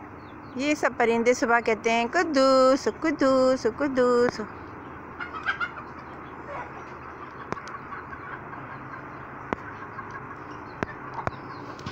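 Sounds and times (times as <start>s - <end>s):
bird calls: 0.0s - 1.0s, 4.4s - 11.9s
chicken clucking: 5.1s - 11.9s.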